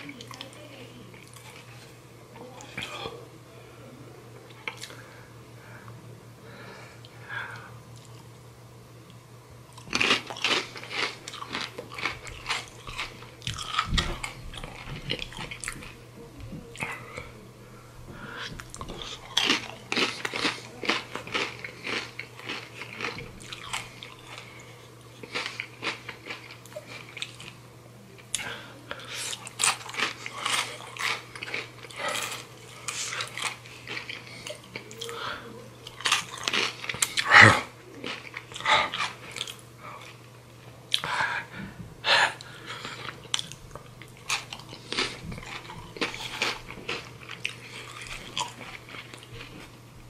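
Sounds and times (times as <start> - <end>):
crunching tortilla chips: 9.7 - 16.0, 18.7 - 27.6, 29.1 - 35.2, 35.8 - 37.3, 37.9 - 40.2, 42.8 - 49.8.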